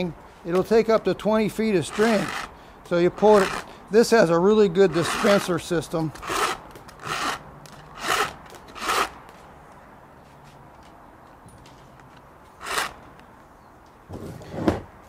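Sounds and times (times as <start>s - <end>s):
trimmer line pulled off spool: 4.9s - 5.5s.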